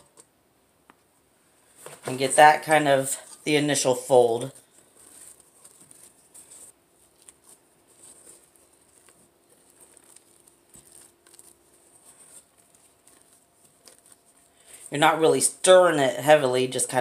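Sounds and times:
spatula scraping and squishing: 4.4 - 14.9.

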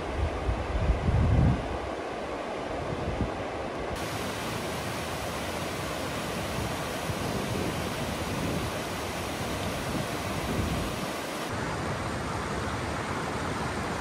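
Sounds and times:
stream rushing over boulders: 3.8 - 14.0.

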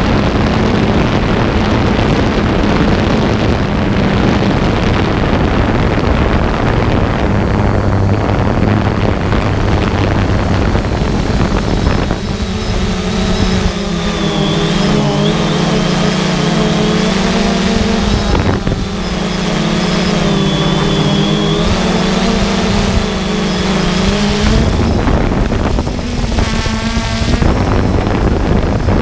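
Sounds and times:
drone propellers humming: 0.0 - 29.0
rough windy noise: 0.0 - 29.0
brief high buzz: 11.6 - 25.1.

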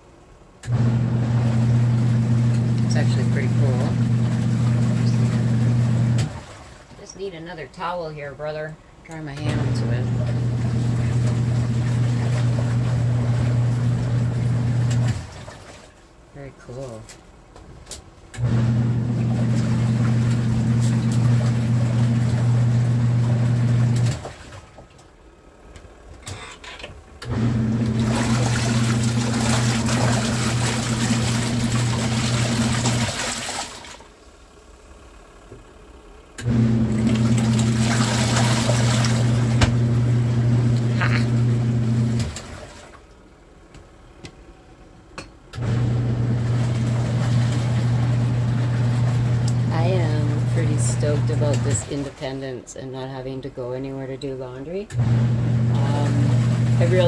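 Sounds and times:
washing machine motor humming: 0.0 - 57.0
water churning: 0.8 - 7.2, 9.5 - 17.2, 18.4 - 25.0, 27.3 - 34.2, 36.5 - 43.2, 45.6 - 52.5, 55.0 - 57.0.

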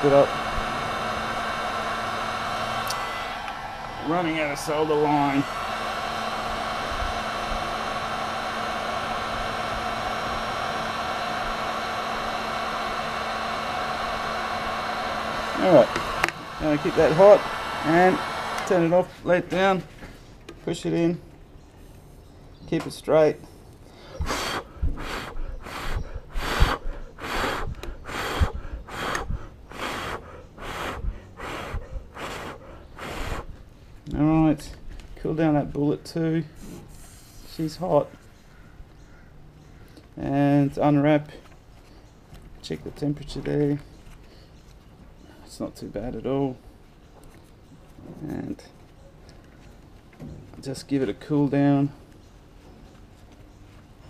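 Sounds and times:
heat gun blowing: 0.0 - 19.5, 24.0 - 33.8, 36.6 - 38.0
man breathing heavily: 23.8 - 33.6.

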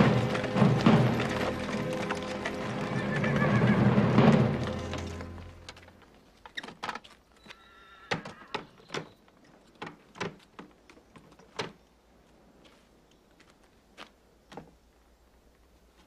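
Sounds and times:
horse whinny: 2.5 - 4.2, 7.5 - 8.8.

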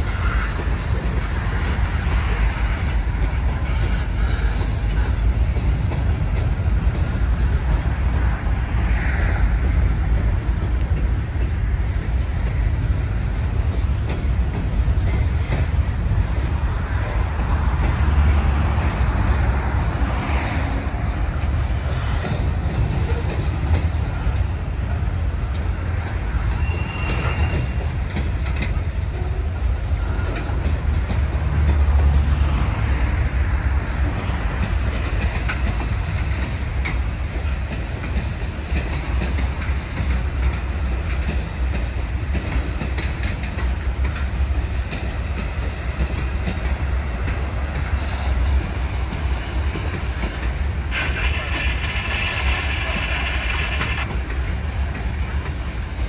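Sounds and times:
freight train wheels rumbling: 0.0 - 56.0.

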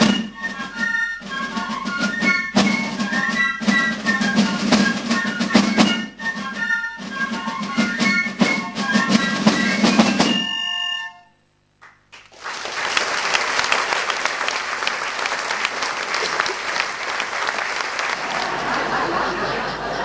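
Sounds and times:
piccolo and drum band playing: 0.0 - 11.0
audience applause: 12.1 - 20.0.

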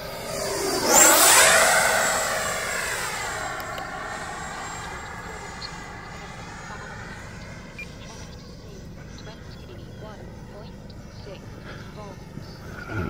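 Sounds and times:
model jet fan whine flying past: 0.0 - 9.5, 12.2 - 13.0.

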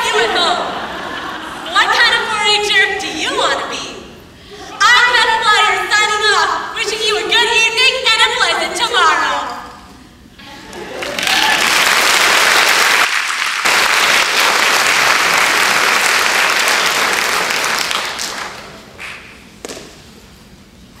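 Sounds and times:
audience applauding: 10.5 - 19.3.

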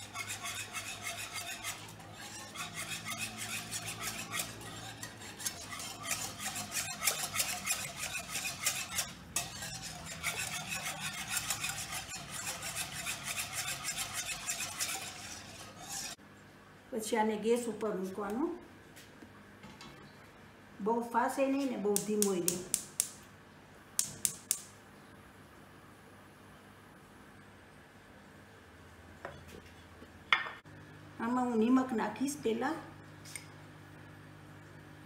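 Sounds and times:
whisk scraping a pan: 0.0 - 16.2.

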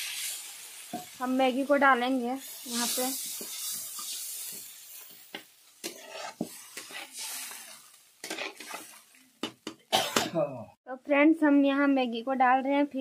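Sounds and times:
faint sizzle: 0.0 - 9.5
spatula scraping a pan: 2.5 - 9.2.

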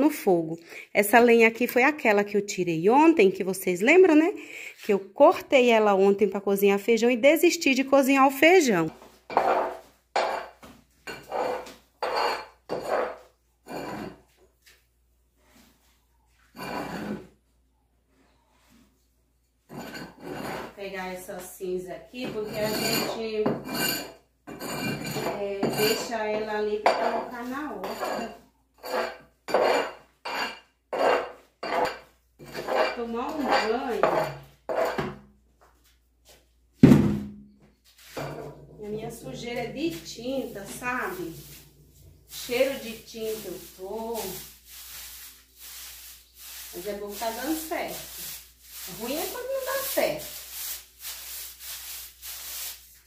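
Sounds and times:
metal scraping ash from stove: 9.4 - 14.2, 16.6 - 17.3, 19.7 - 20.8, 22.3 - 26.2, 26.9 - 35.0.

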